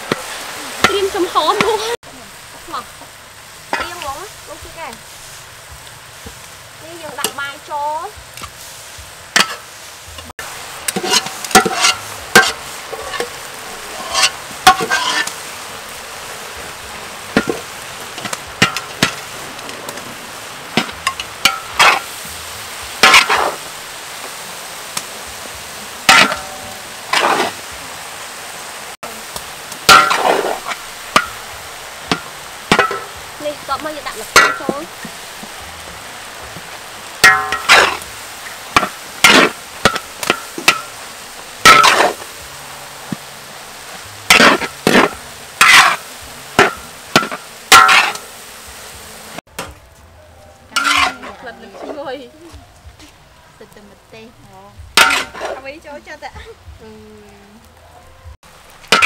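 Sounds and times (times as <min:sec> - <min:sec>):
frying sizzle: 0:00.0 - 0:59.0
metal spatula scraping a wok: 0:08.5 - 0:09.7, 0:10.9 - 0:15.6, 0:16.6 - 0:22.2, 0:23.0 - 0:23.7, 0:26.0 - 0:27.6, 0:29.9 - 0:31.4, 0:32.1 - 0:33.2, 0:34.1 - 0:35.5, 0:37.2 - 0:41.0, 0:41.6 - 0:42.4, 0:44.3 - 0:48.3, 0:50.7 - 0:52.2, 0:55.0 - 0:55.8.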